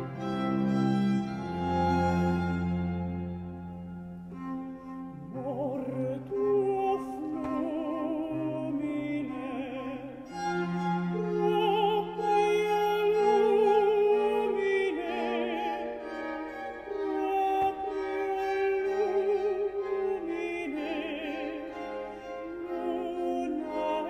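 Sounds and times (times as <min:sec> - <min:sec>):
string quartet playing: 0:00.0 - 0:24.0
countertenor singing with vibrato: 0:05.1 - 0:24.0.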